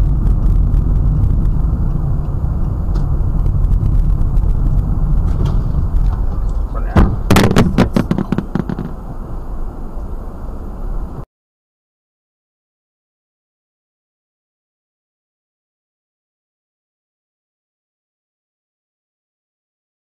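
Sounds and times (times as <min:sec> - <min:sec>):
vehicles crashing: 0:00.0 - 0:10.0
car engine rumble: 0:00.0 - 0:11.3
road noise inside cabin: 0:00.0 - 0:11.3.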